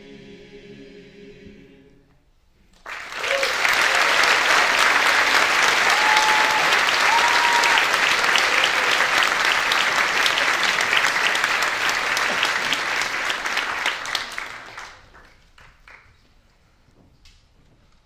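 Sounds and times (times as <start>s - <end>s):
audience applauding: 2.8s - 16.2s.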